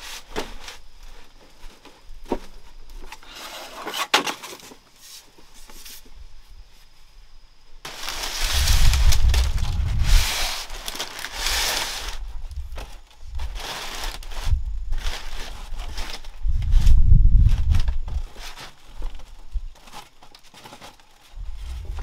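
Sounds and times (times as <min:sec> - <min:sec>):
leaves and sticks rustling and snapping: 0:07.8 - 0:22.0.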